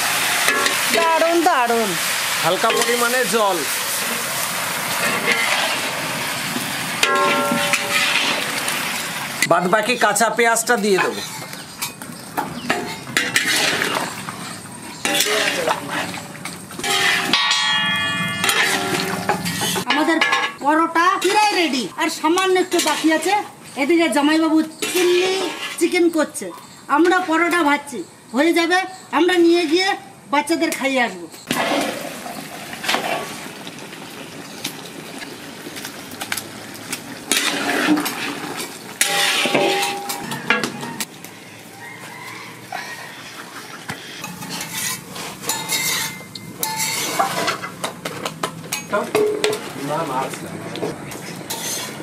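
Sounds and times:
low sizzle: 0.0 - 28.5, 29.6 - 52.0
spatula scraping metal wok: 4.9 - 9.4, 10.8 - 12.0, 12.6 - 19.9, 22.4 - 23.5, 24.7 - 26.0, 37.3 - 40.8, 43.1 - 47.9, 51.1 - 52.0.

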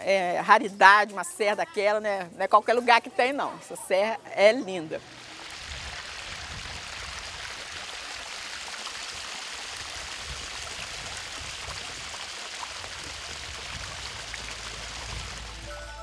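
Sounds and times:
stream of running water: 5.0 - 15.8.

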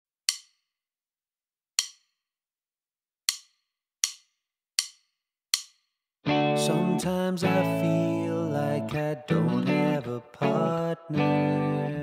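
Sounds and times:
click-track ticks: 0.3 - 0.6, 1.8 - 2.0, 3.3 - 4.2, 4.8 - 5.8.

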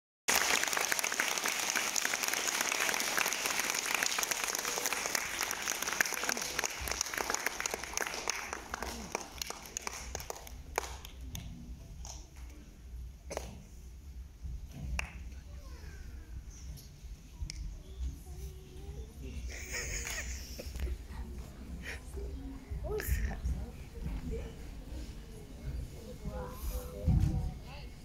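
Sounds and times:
audience applauding: 0.3 - 11.2.

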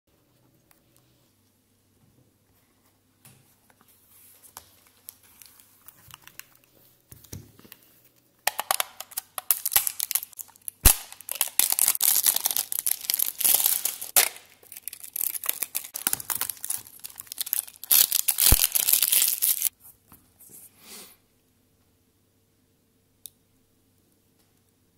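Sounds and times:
plastic bags crinkling: 8.5 - 19.7.

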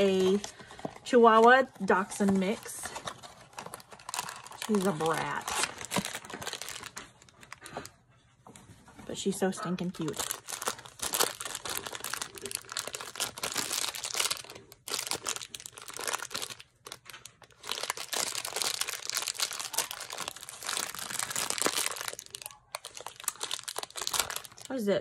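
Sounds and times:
foil bag crinkling: 0.0 - 7.9, 9.9 - 24.9.

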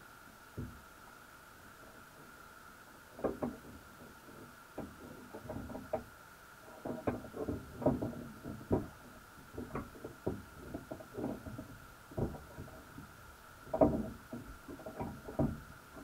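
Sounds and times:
underwater knocks and clicks: 3.2 - 6.1, 6.8 - 16.0.

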